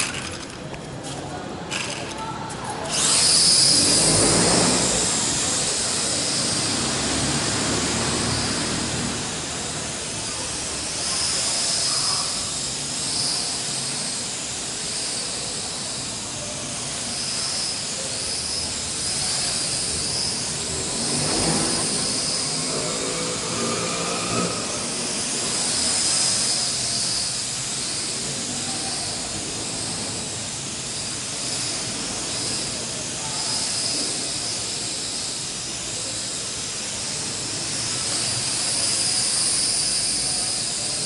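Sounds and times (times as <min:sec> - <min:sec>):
toy drone propeller whine: 0:00.0 - 0:41.0.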